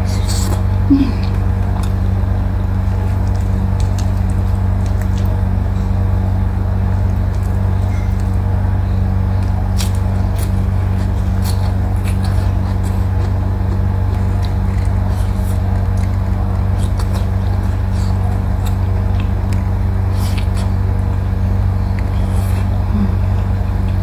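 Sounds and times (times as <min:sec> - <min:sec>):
loud steady low hum: 0:00.0 - 0:24.0
person chewing: 0:02.7 - 0:05.3, 0:09.3 - 0:24.0.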